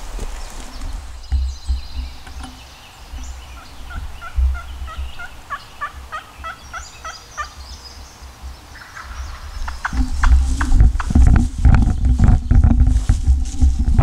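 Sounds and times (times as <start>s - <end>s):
wild turkey calling: 1.3s - 11.2s.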